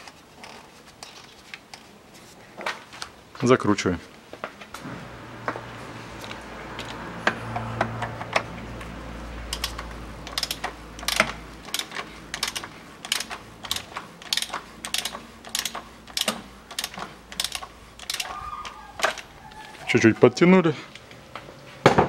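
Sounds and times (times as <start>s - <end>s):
socket ratchet clicking: 9.4s - 19.4s.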